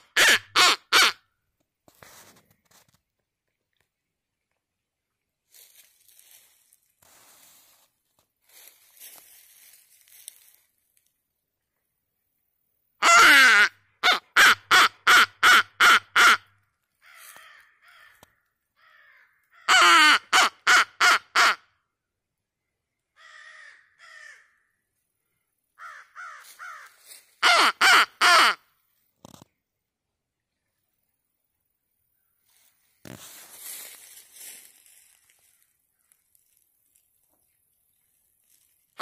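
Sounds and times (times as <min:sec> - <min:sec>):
faint distant caws: 0:17.0 - 0:19.8, 0:23.2 - 0:24.8, 0:25.8 - 0:27.6, 0:35.3 - 0:36.2
crows cawing: 0:17.0 - 0:21.5, 0:23.2 - 0:24.7, 0:25.8 - 0:28.6.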